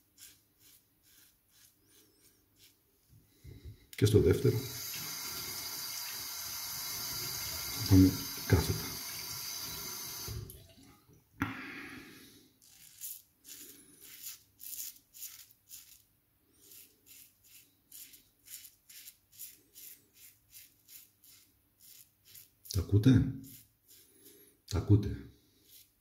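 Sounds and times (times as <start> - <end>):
razor scraping stubble: 0.0 - 2.8, 12.6 - 24.5, 25.5 - 26.0.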